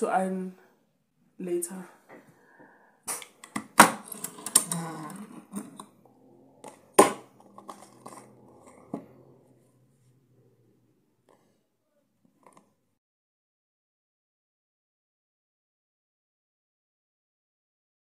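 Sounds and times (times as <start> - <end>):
stapler and staples clattering: 3.1 - 4.8.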